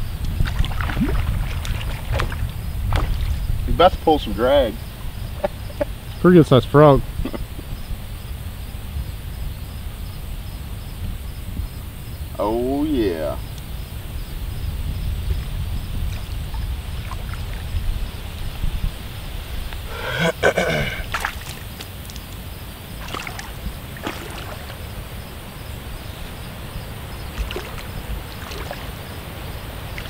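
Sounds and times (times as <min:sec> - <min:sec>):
wind rumble on microphone: 0:00.0 - 0:30.0
water sloshing: 0:00.2 - 0:06.2, 0:15.9 - 0:19.0, 0:19.8 - 0:30.0
short voice-like call: 0:19.9 - 0:21.1.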